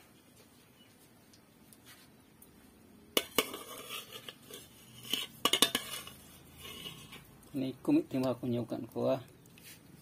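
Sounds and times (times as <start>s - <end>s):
metal pot clanking: 3.2s - 7.3s.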